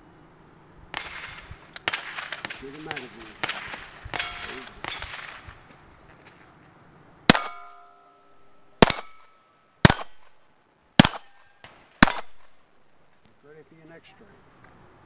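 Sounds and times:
pistol shots: 0.9s - 5.7s, 7.3s - 10.4s, 11.0s - 12.7s
steel plate ringing: 4.1s - 5.3s, 7.3s - 10.2s.

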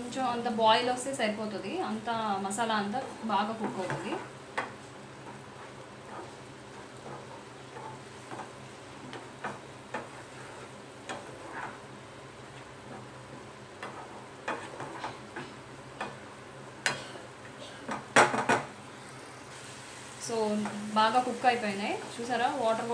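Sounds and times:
masala sizzling: 0.0s - 22.9s
spatula scraping frying pan: 2.8s - 16.2s.

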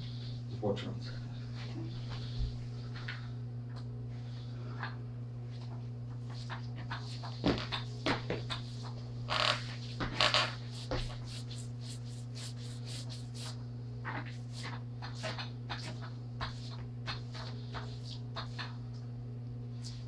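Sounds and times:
paintbrush scraping on wall: 10.2s - 13.6s.

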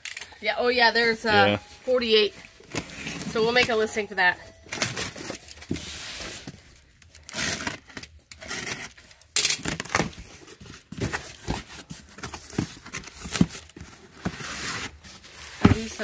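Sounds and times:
tape and cardboard ripping: 7.1s - 15.7s
cardboard knocks and rustles: 15.6s - 16.0s.

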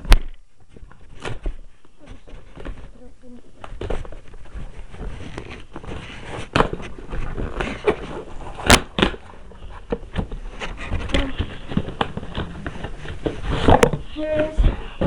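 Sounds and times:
packaging rustling: 3.6s - 15.0s.

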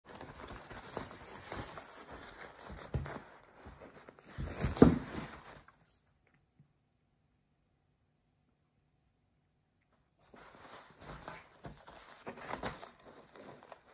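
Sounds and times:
paper towel rustling: 0.0s - 6.0s, 10.2s - 13.9s.

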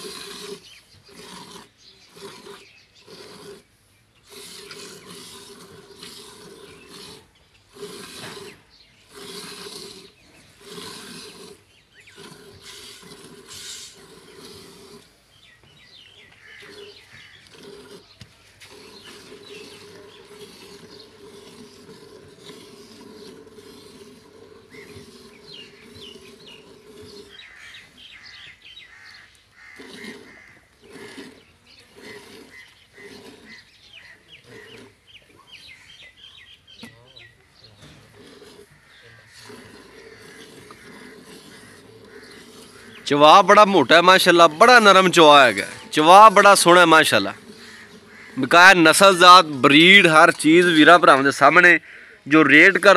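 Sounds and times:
small birds chirping: 0.0s - 52.9s.

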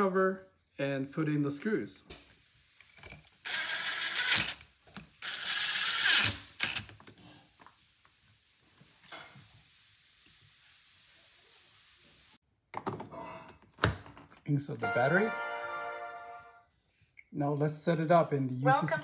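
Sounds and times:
impact driver driving screws: 5.3s - 6.9s.

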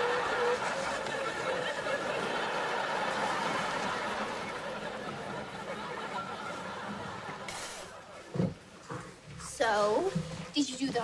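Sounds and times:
studio audience laughing: 0.0s - 8.3s.

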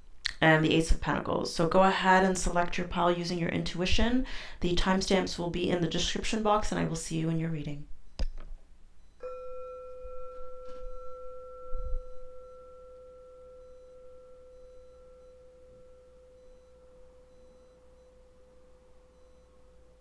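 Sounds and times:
chime ringing: 9.2s - 19.2s.

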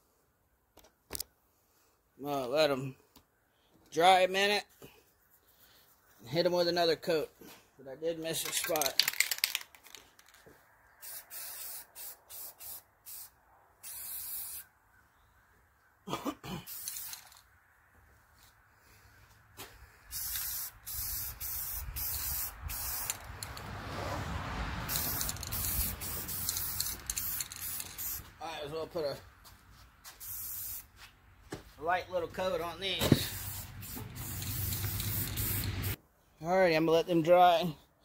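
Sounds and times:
spray can hissing: 11.0s - 14.6s, 16.7s - 17.4s, 20.1s - 23.6s, 24.9s - 28.3s, 30.2s - 30.9s, 33.1s - 36.0s.

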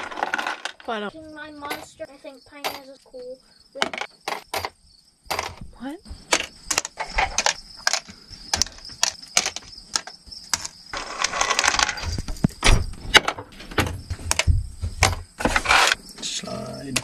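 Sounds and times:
metal screws clinking into bins: 0.0s - 1.1s, 6.4s - 12.3s
screws rattling when stirred: 10.6s - 12.2s.

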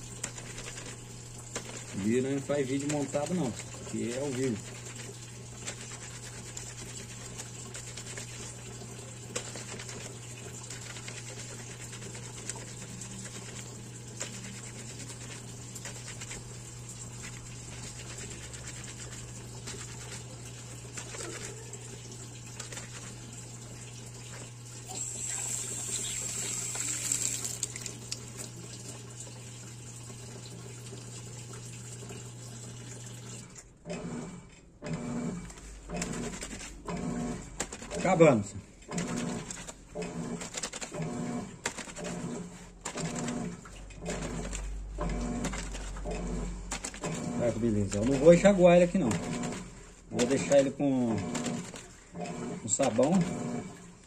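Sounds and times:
wet fabric rubbing and squelching: 9.3s - 21.8s.

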